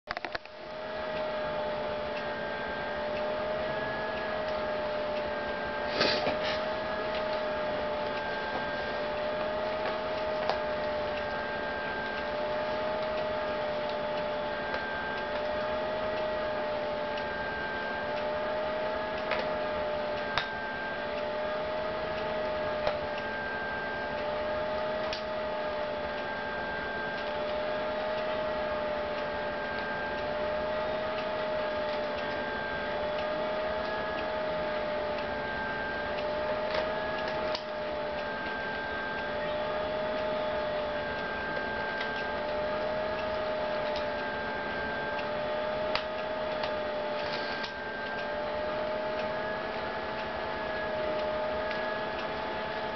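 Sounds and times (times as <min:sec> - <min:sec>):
wavering machine hum: 0:00.1 - 0:52.9
faint higher tone: 0:25.5 - 0:52.8.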